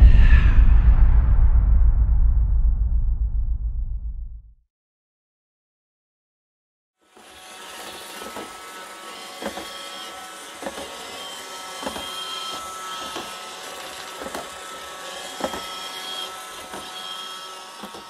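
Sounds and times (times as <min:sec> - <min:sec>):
robot vacuum motor hum: 0:07.0 - 0:18.0.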